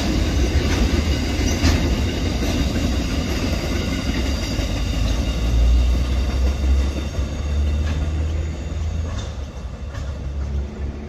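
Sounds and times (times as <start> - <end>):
freight train rumbling past: 0.0 - 11.0
high tones from train wheels: 0.0 - 11.0.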